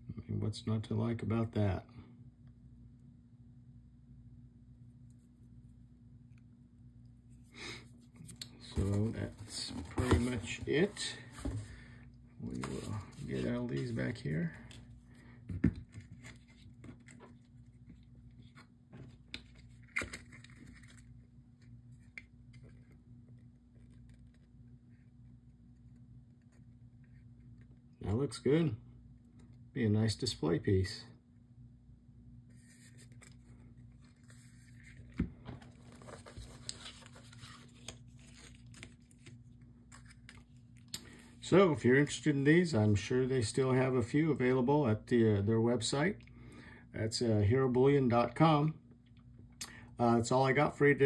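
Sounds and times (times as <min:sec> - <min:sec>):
low steady hum: 0:00.0 - 0:51.0.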